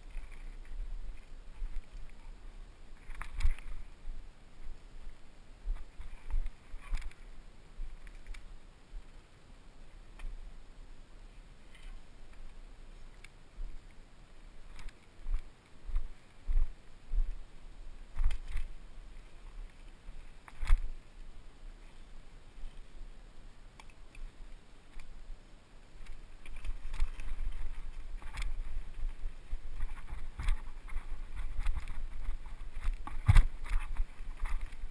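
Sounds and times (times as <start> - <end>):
bike rumbling on dirt trail: 26.0 - 34.9
bike knocks and rattles: 26.5 - 34.9.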